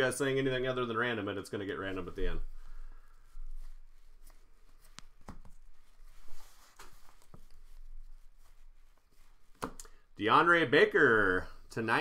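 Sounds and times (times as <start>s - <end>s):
cards clicking and tapping: 9.5s - 10.0s.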